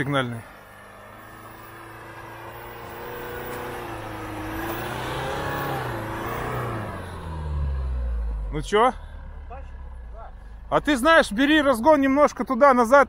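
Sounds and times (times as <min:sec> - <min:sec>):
truck engine revving hard: 0:01.1 - 0:12.2.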